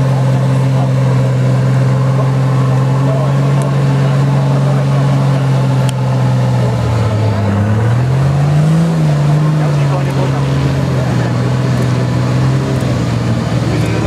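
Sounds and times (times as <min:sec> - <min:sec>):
engine revving under load: 0:00.0 - 0:14.0.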